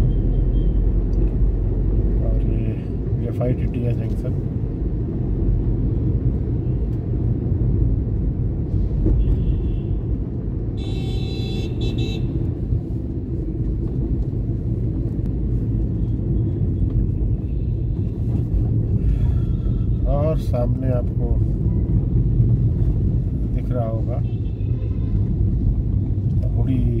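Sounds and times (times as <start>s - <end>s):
road traffic rumble: 0.0s - 27.0s
vehicle horn: 9.2s - 10.0s, 10.8s - 12.4s, 24.2s - 25.1s.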